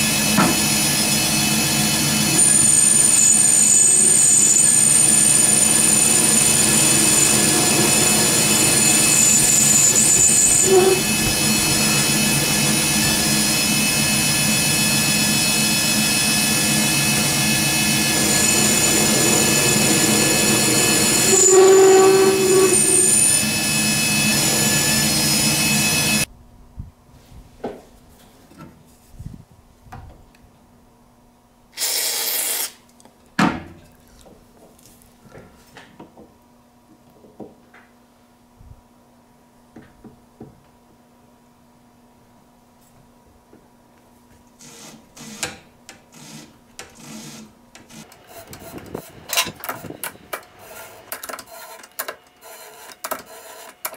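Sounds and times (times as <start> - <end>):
metal lathe machining: 0.0 - 26.3.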